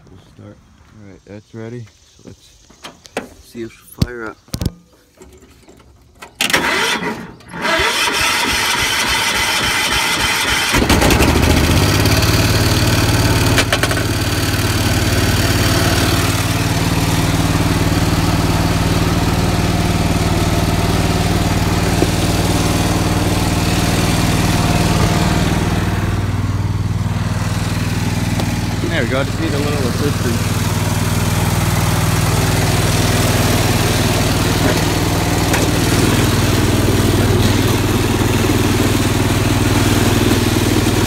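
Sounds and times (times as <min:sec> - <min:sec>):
starter motor cranking: 0:06.3 - 0:12.4, 0:28.3 - 0:41.0
small engine running: 0:06.6 - 0:41.0.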